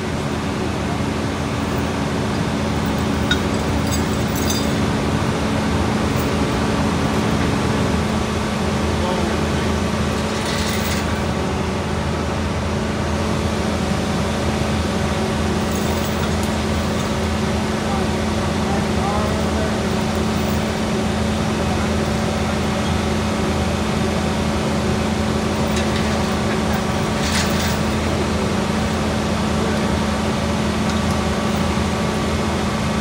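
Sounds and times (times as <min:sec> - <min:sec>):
diesel machinery droning: 0:00.0 - 0:33.0.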